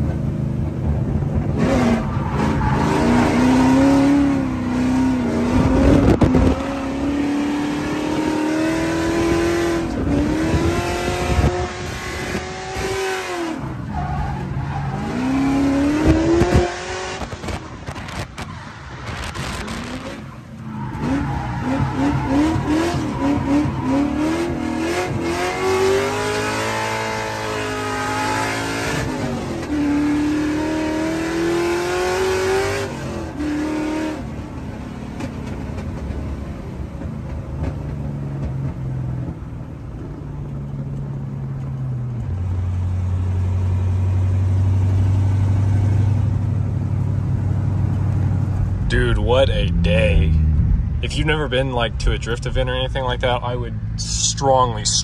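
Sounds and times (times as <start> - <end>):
car engine revving high: 1.4 - 14.1, 14.7 - 34.4.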